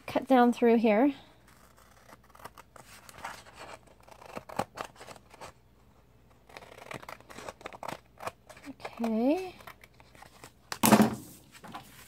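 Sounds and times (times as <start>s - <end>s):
scissors snipping paper: 1.4s - 5.5s, 6.3s - 10.5s.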